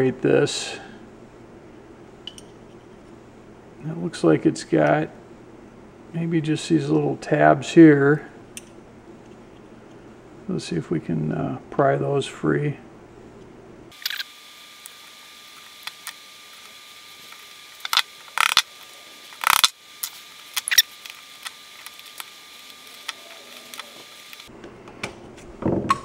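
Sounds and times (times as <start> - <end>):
screwdriver clicking and scraping: 17.3 - 18.7, 19.3 - 22.3.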